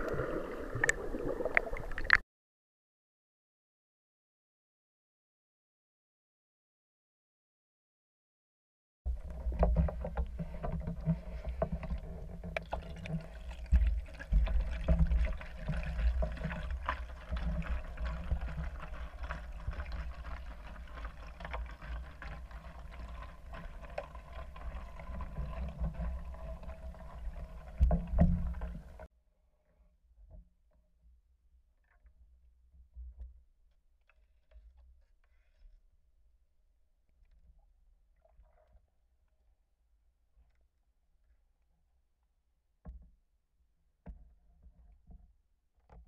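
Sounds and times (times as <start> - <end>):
muffled underwater rumbling: 0.0 - 2.2, 9.1 - 29.1
underwater clicks and knocks: 0.0 - 2.2, 9.1 - 29.1, 42.8 - 43.3, 44.0 - 46.0.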